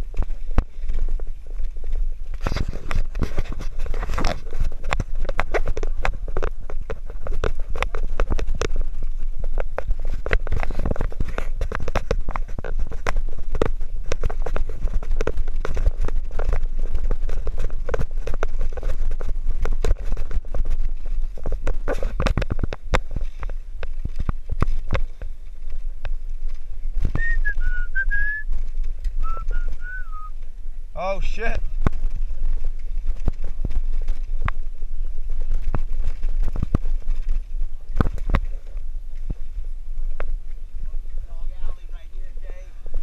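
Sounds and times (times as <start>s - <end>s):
bicycle rattling over concrete: 0.0s - 43.0s
wind on microphone: 0.0s - 43.0s
wavering whistle: 27.2s - 28.5s, 29.2s - 30.3s.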